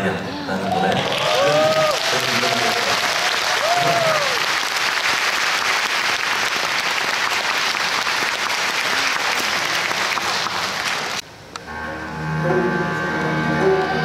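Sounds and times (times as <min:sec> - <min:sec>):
audience applauding: 0:00.6 - 0:11.2.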